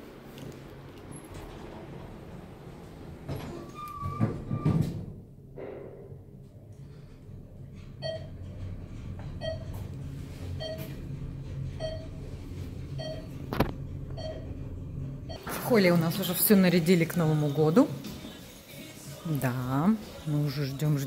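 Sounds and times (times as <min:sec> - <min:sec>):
low hum: 0:05.3 - 0:17.6.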